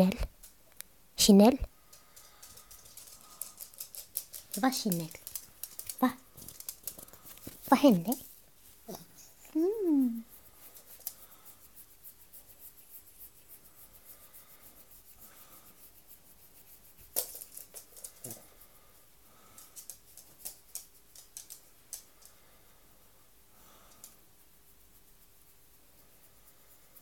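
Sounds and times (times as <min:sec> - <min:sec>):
fingers scratching dog fur: 0:02.7 - 0:18.6.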